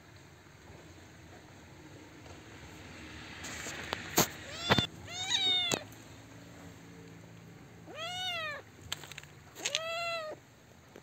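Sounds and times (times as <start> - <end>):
kitten meowing: 4.4 - 5.9, 7.8 - 8.7, 9.6 - 10.4.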